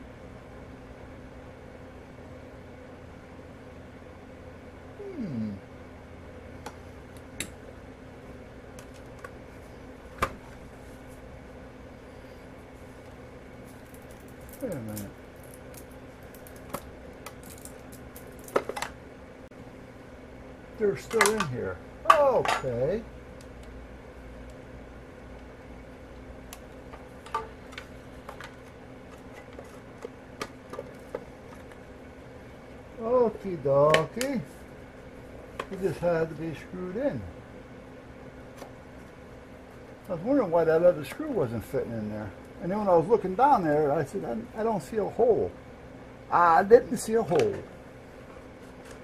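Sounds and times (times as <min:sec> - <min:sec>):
low steady hum: 0:00.0 - 0:49.0
small parts clicking and tapping: 0:13.8 - 0:19.0.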